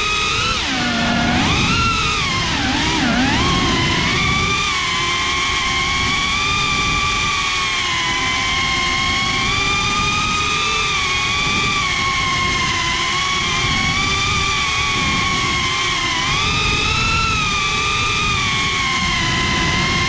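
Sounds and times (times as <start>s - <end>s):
drone propellers whining: 0.0s - 20.0s
wind rumble: 0.0s - 20.0s.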